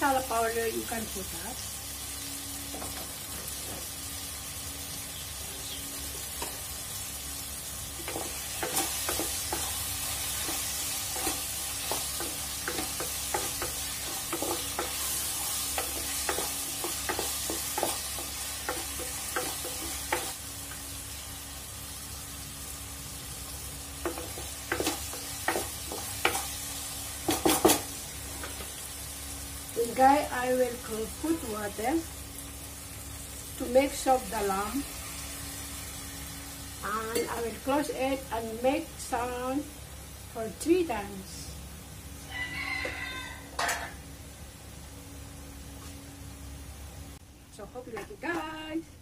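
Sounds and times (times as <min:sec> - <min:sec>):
food sizzling in a pot: 0:00.0 - 0:49.0
spatula clacking and scraping pot: 0:08.0 - 0:20.4, 0:24.0 - 0:26.6, 0:27.2 - 0:28.7.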